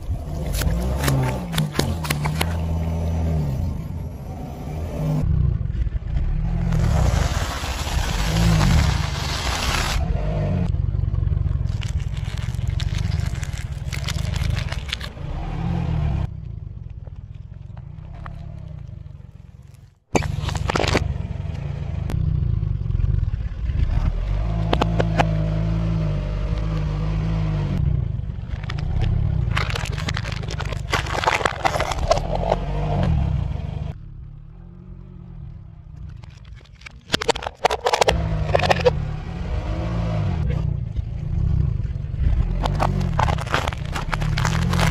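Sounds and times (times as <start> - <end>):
car engine rumbling: 0.0 - 44.9
crackers crunching under tyre: 0.1 - 3.0, 6.6 - 10.0, 11.4 - 15.3, 16.8 - 21.1, 28.4 - 33.0, 35.9 - 39.0, 42.3 - 44.9
plastic toy cracking: 11.6 - 15.1, 28.6 - 32.6, 36.0 - 38.9, 42.6 - 44.9.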